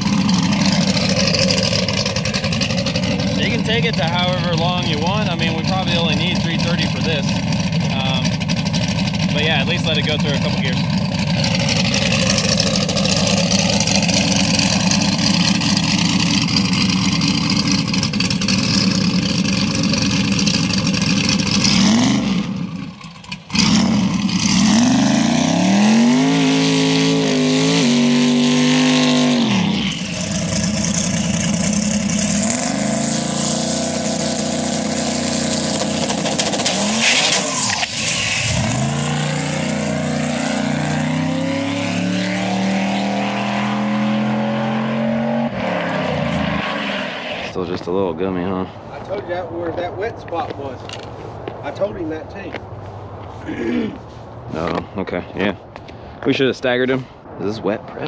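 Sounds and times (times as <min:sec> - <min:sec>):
car engine accelerating through gears: 0:00.0 - 0:47.6.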